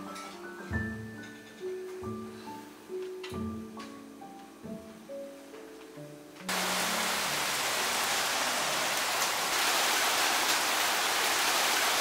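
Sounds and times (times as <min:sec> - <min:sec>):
rain falling on street: 0:06.5 - 0:12.0.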